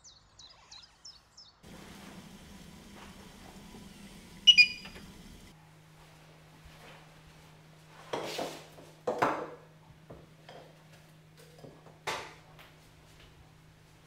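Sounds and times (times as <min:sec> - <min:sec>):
faint steady hum: 0:01.6 - 0:14.0
knocks and clinks of kitchenware: 0:09.0 - 0:09.6.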